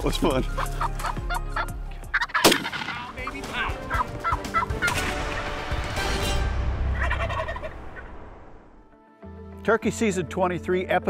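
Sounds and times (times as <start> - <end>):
turkeys gobbling: 0.4 - 5.6, 6.9 - 8.2
sharp loud crack: 2.4 - 3.3.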